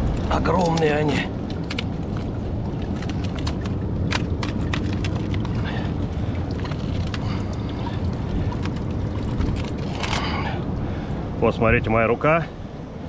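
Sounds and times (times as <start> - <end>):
steady low rumble: 0.0 - 13.0
mussel shells clicking and cracking: 0.6 - 10.4.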